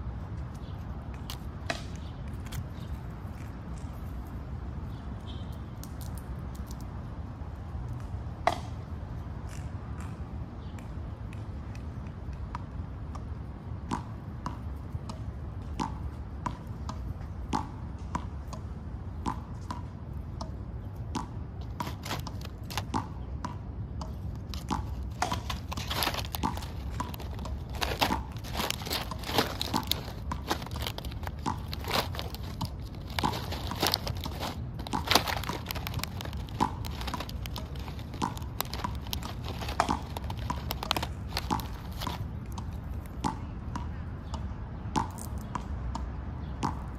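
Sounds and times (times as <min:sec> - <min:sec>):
squirrel cracking peanut shells: 0:00.3 - 0:04.3, 0:05.5 - 0:07.0, 0:20.9 - 0:23.3, 0:24.0 - 0:43.2, 0:45.1 - 0:45.5
peanuts rummaged in plastic tray: 0:21.8 - 0:22.9, 0:24.5 - 0:42.2.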